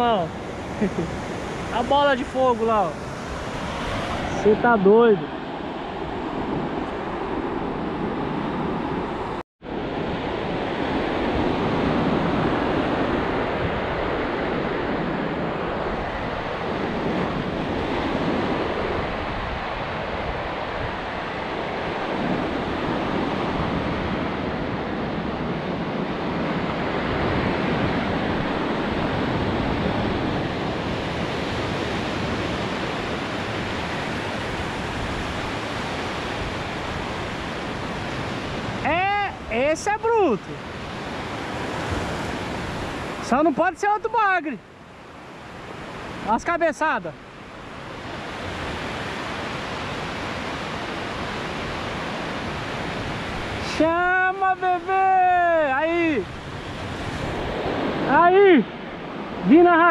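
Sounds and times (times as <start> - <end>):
wind buffeting the microphone: 0.0 - 43.4, 47.2 - 59.9
waves breaking on a beach: 0.0 - 59.9.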